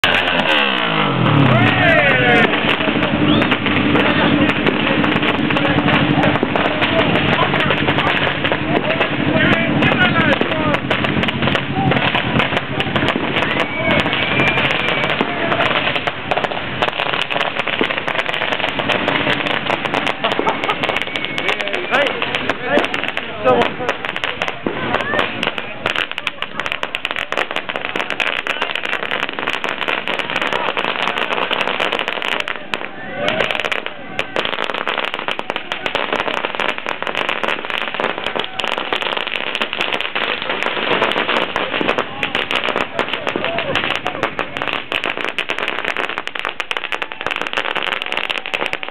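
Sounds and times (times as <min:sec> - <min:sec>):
firecrackers crackling: 0:00.0 - 0:48.9.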